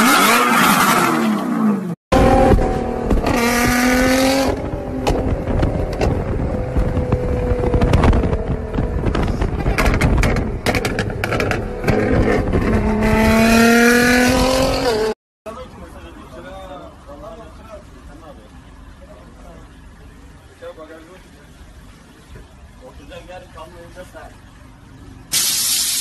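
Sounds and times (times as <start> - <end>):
car engine revving hard: 0.0 - 5.6, 10.6 - 15.2.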